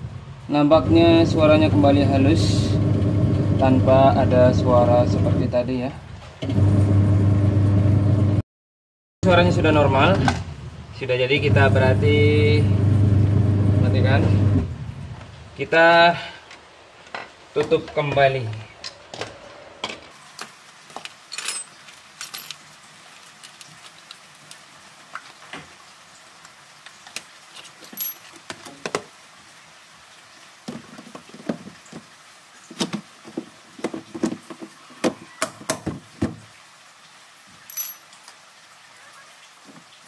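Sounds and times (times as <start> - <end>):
metal tools clinking: 21.3 - 22.6, 27.8 - 28.4, 37.6 - 38.4
hard plastic knocking: 32.8 - 36.4.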